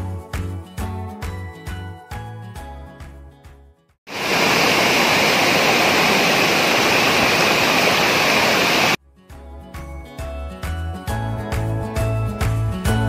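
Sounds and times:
music: 0:00.0 - 0:04.0, 0:09.0 - 0:13.0
waterfall rushing: 0:04.1 - 0:09.0.

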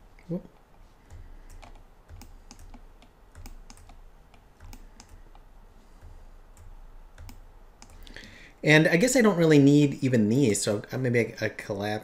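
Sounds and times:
mouse and keyboard clicks: 0:00.6 - 0:08.0.

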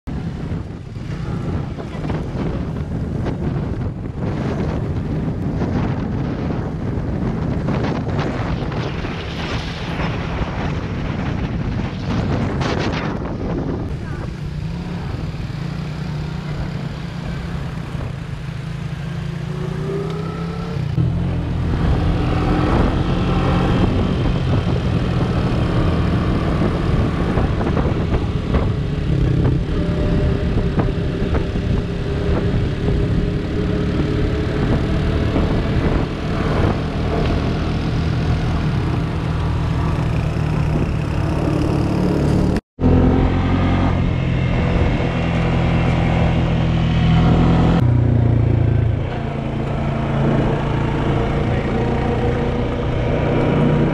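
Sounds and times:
wind noise on microphone: 0:00.1 - 0:53.9
quad bike engine running: 0:13.7 - 0:53.9.

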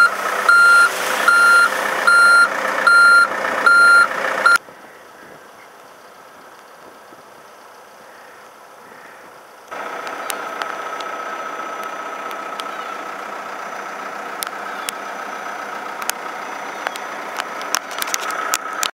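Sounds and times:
road sweeper engine whining: 0:00.0 - 0:04.6, 0:09.7 - 0:18.9.

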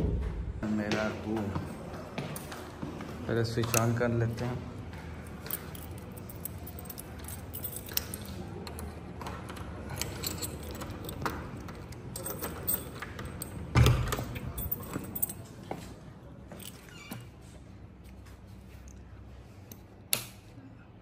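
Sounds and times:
keys jangling: 0:05.2 - 0:08.4, 0:09.9 - 0:15.5.

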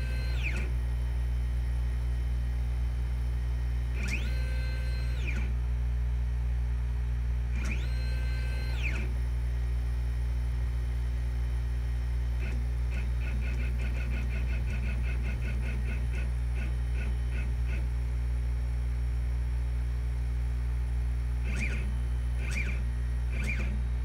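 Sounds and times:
stepper motor chirps: 0:00.0 - 0:00.7, 0:04.0 - 0:05.5, 0:07.6 - 0:09.1, 0:12.4 - 0:17.8, 0:21.4 - 0:24.0
stepper motor whine: 0:00.0 - 0:00.8, 0:03.8 - 0:05.6, 0:07.5 - 0:09.4, 0:12.4 - 0:18.0, 0:21.3 - 0:24.0
steady low hum: 0:00.0 - 0:24.0.

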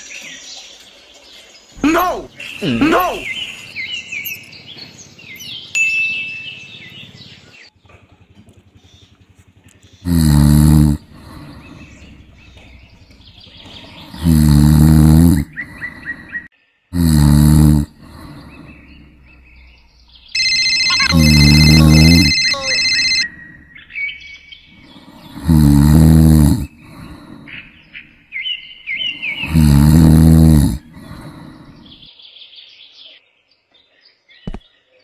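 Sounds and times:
birds chirping: 0:00.0 - 0:35.0
cartoon snoring: 0:01.8 - 0:03.4, 0:10.0 - 0:19.3, 0:20.4 - 0:23.3, 0:24.8 - 0:27.6, 0:29.2 - 0:32.0
high electronic tone: 0:20.4 - 0:23.3.

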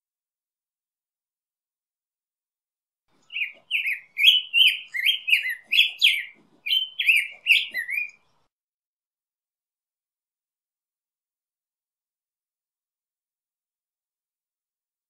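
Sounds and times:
bird singing whistled notes: 0:03.2 - 0:08.3.

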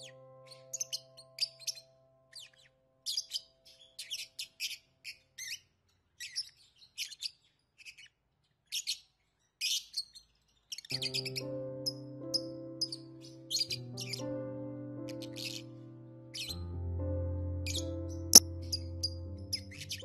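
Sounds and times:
parakeets chirping: 0:00.0 - 0:11.4.

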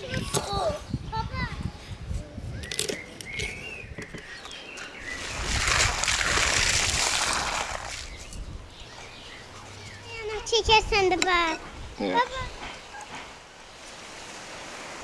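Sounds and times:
water spraying into bowl: 0:05.2 - 0:08.2.

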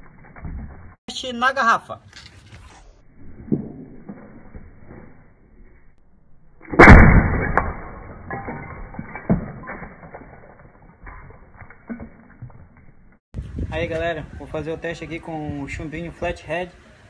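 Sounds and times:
glass bottle bursting: 0:06.7 - 0:12.7.

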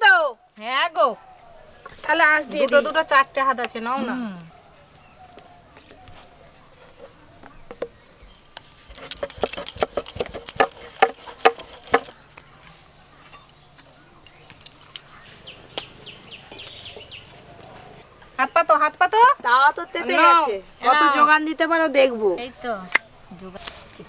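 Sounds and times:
hands working dough: 0:08.6 - 0:12.2
bangles clinking: 0:08.6 - 0:12.6, 0:14.3 - 0:15.1
faint chirping: 0:11.8 - 0:18.7.

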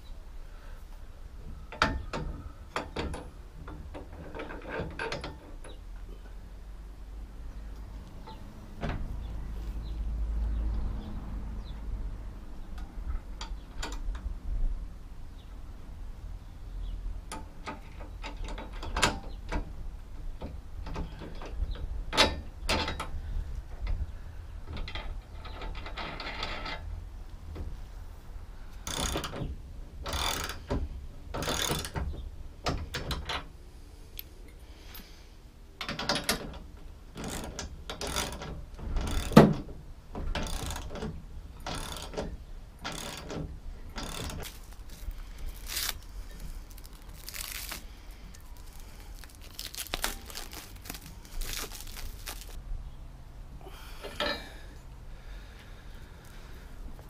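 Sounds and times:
ratchet wrench clicking: 0:41.6 - 0:42.2
plastic wrap crinkling: 0:44.4 - 0:52.6.

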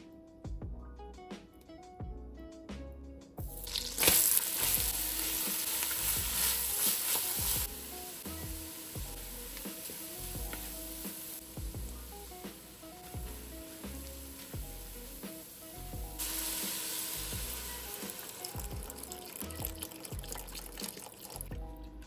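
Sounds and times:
background music with a beat: 0:00.0 - 0:22.0
vegetables sizzling in butter: 0:03.5 - 0:21.5
wooden spoon stirring: 0:03.7 - 0:07.7.

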